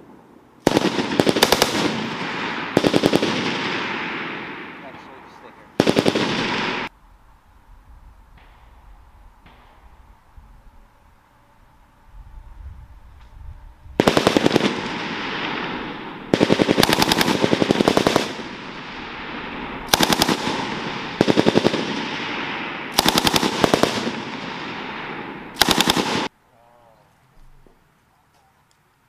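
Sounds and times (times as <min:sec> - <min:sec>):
gunfire echo: 0:00.0 - 0:06.9, 0:08.3 - 0:10.1, 0:14.0 - 0:26.3
machine gun automatic fire: 0:00.7 - 0:03.9, 0:05.8 - 0:06.9, 0:14.0 - 0:15.6, 0:16.3 - 0:18.7, 0:19.9 - 0:22.3, 0:22.9 - 0:24.7, 0:25.6 - 0:26.3.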